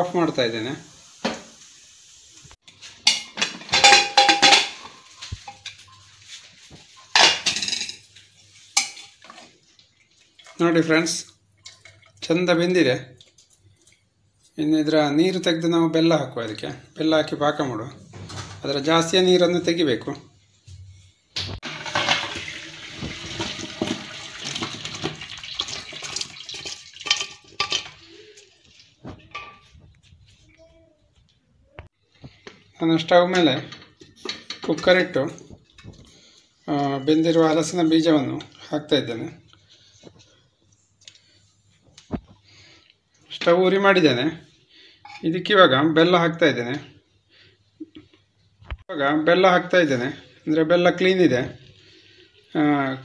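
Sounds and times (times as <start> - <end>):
metal lid clanking against pot: 3.1 - 4.9
water splashing into colander: 21.6 - 29.7.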